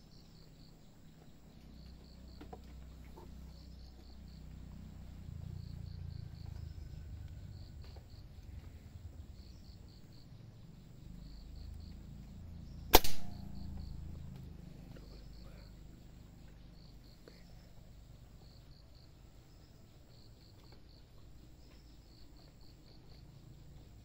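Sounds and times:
insects chirping: 0:00.0 - 0:24.0
air rifle shot: 0:12.9 - 0:13.8.

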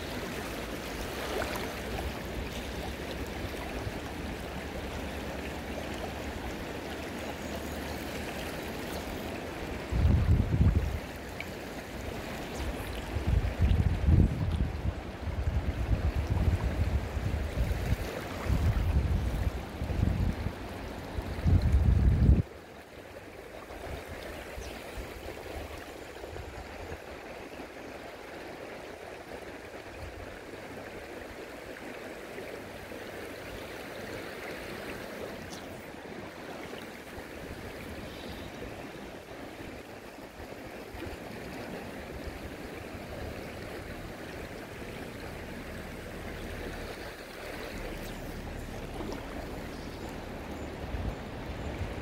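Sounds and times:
river rushing over stones: 0:00.0 - 0:14.5, 0:28.0 - 0:52.0.

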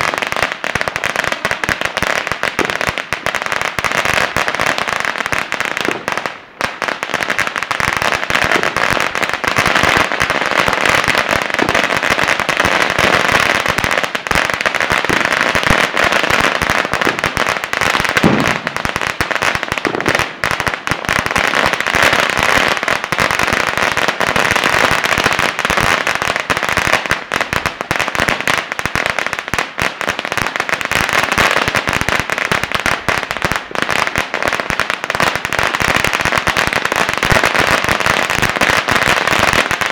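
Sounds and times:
firecrackers rapid popping: 0:00.0 - 0:39.9.

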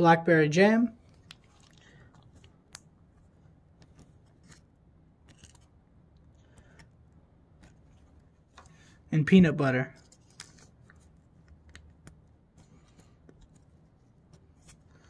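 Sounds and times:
small clicks and rustles: 0:01.0 - 0:07.0, 0:10.0 - 0:15.0
food pouch crinkling: 0:01.1 - 0:02.9, 0:03.9 - 0:05.7.

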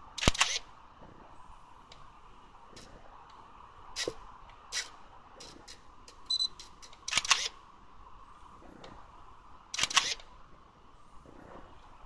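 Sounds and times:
camera shutter and film advance: 0:00.2 - 0:00.7, 0:06.3 - 0:07.6, 0:09.8 - 0:10.3
short electronic beep: 0:06.3 - 0:06.5.

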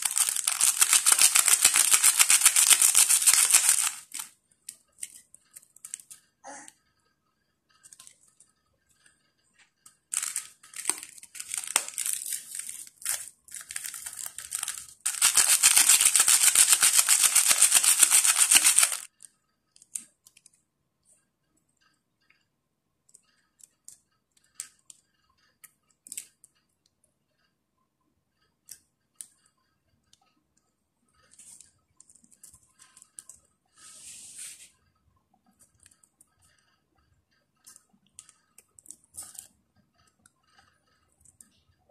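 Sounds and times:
plastic sachets crinkling: 0:00.0 - 0:04.3, 0:10.1 - 0:19.1.

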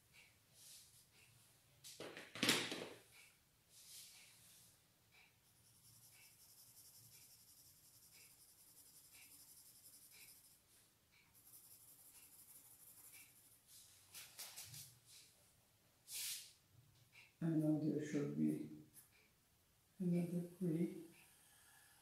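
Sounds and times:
pencil scratching on paper: 0:05.2 - 0:14.4.

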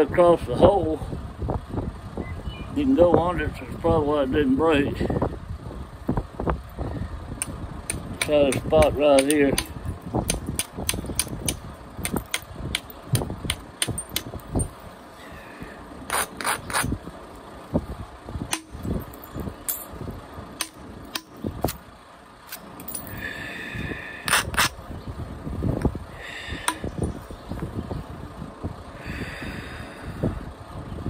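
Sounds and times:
billet clicking on stone: 0:07.4 - 0:14.7, 0:18.5 - 0:19.9, 0:20.6 - 0:21.8, 0:26.6 - 0:27.1.

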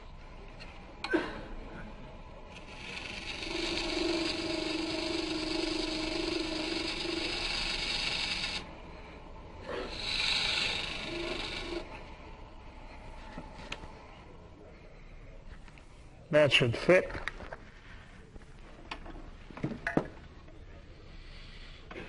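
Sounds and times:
tool cutting wet wood on lathe: 0:02.5 - 0:08.8, 0:09.7 - 0:12.1.

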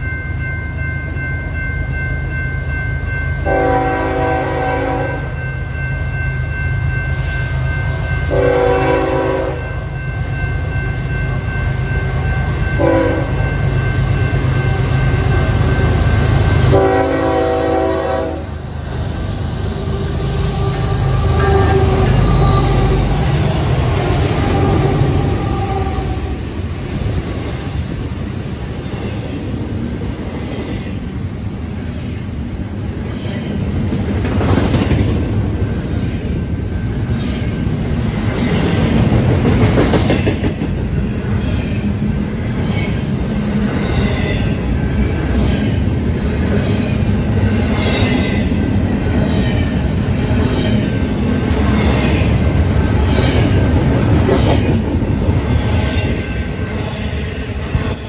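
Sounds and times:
crossing bell ringing: 0:00.0 - 0:26.5
diesel locomotives rumbling past: 0:00.0 - 0:58.0
rolling clatter of railcars: 0:00.0 - 0:58.0
locomotive air horn: 0:03.5 - 0:05.3, 0:08.3 - 0:09.7, 0:12.8 - 0:13.3, 0:16.7 - 0:18.5.

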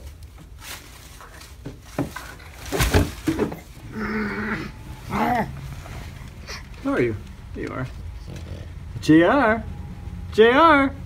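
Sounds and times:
knocks and rustles of handling: 0:00.0 - 0:03.9.

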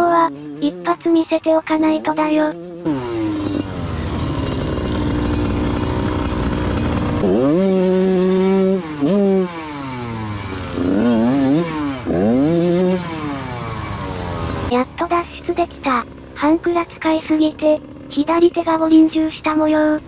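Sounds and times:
two-stroke engine revving hard: 0:00.0 - 0:20.0.

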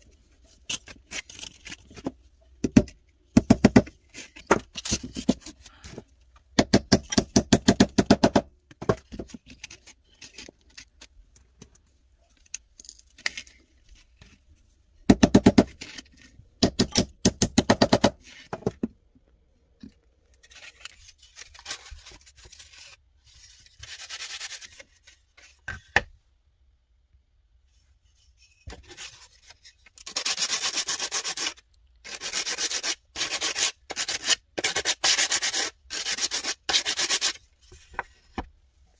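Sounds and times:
wood block sanding strokes: 0:30.1 - 0:37.4.

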